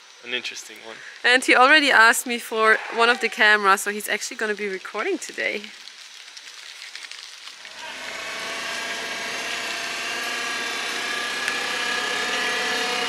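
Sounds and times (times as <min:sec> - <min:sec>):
forklift engine running: 0:07.8 - 0:13.0.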